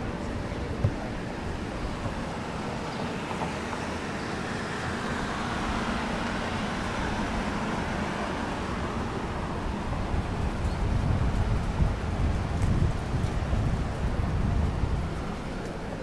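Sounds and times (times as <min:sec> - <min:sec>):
outdoor noise: 0:00.0 - 0:16.0.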